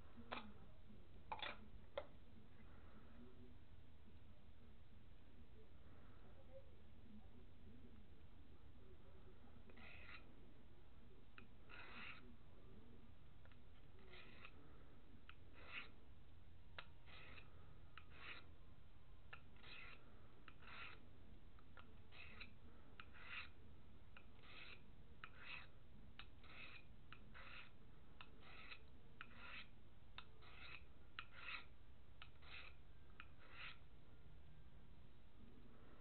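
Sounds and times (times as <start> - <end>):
knife scraping sharpening plate: 1.3 - 1.7, 9.7 - 10.3, 11.4 - 12.4, 13.5 - 14.6, 15.3 - 16.0, 16.8 - 18.6, 19.3 - 21.1, 21.8 - 23.6, 24.2 - 33.9.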